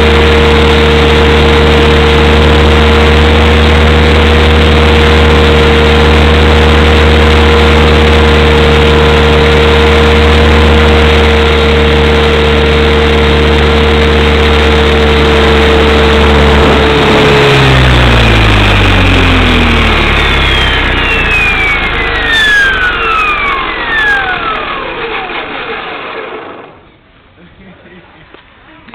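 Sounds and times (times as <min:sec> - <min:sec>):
small engine running: 0:00.0 - 0:27.1
engine winding down: 0:00.0 - 0:27.4.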